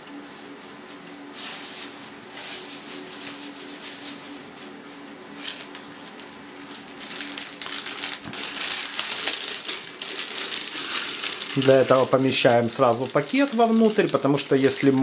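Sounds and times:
plastic bag rustling and crinkling: 5.3 - 15.0.

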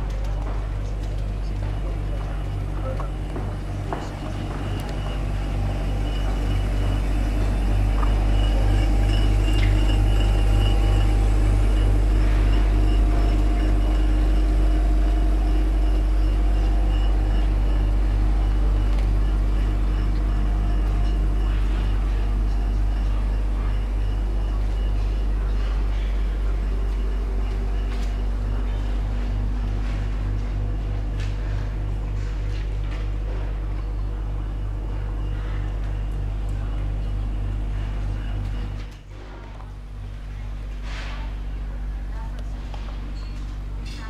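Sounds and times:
faint hum: 0.0 - 44.0.

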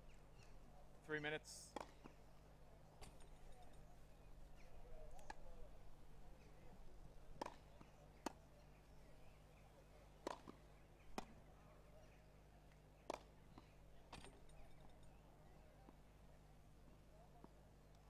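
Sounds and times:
tennis balls struck by racquets: 1.7 - 2.2, 7.3 - 8.6, 10.2 - 11.5, 13.0 - 14.5.

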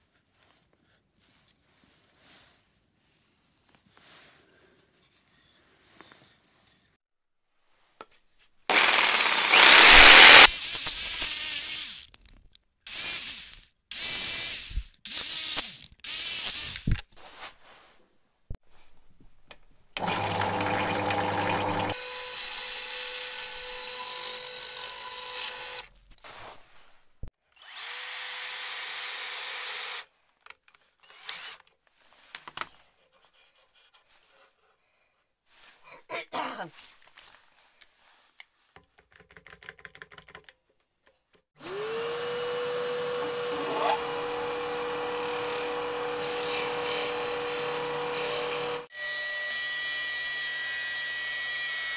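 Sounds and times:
drill press whining: 8.7 - 10.5, 20.0 - 22.0, 41.7 - 48.9
jigsaw cutting plywood: 8.7 - 10.5, 20.0 - 25.9, 41.6 - 50.3.

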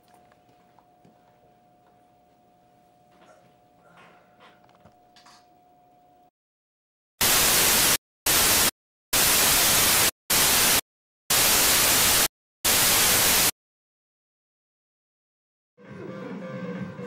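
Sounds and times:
television static hiss: 7.2 - 13.5.

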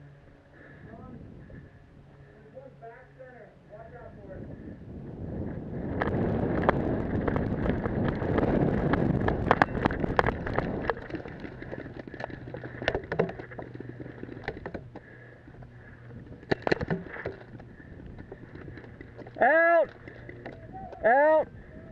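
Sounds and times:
wind rushing over microphone: 0.7 - 2.3, 3.7 - 21.9
gear rattling: 5.9 - 21.1.

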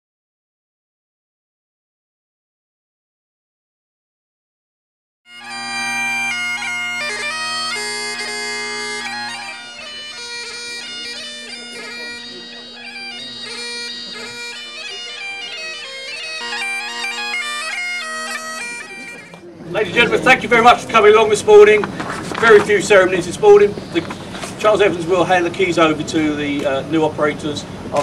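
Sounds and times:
bagpipes playing a tune: 5.3 - 27.1.

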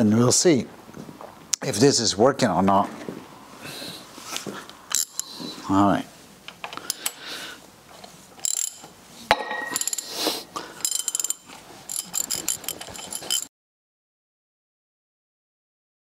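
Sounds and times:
ratchet wrench clicking: 4.9 - 5.3, 8.4 - 8.9, 9.8 - 10.1, 10.8 - 13.5
metal tools knocking: 8.4 - 10.1, 10.8 - 13.5.

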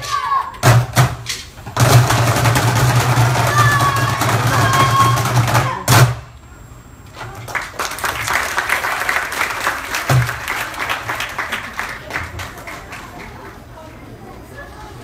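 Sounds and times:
loud drum hit: 0.6 - 6.3
audience applause: 7.3 - 13.7.

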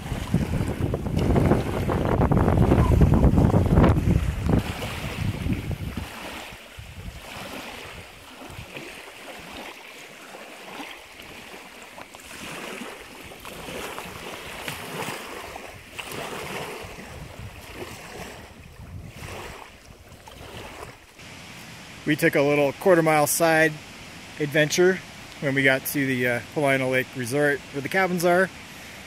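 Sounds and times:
wind buffeting microphone: 0.0 - 9.6, 12.2 - 21.0
waves lapping on gravel: 0.0 - 29.0.

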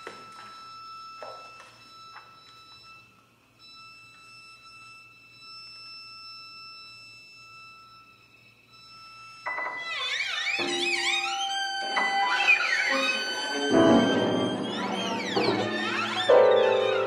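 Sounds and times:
held high string note: 13.2 - 17.0.

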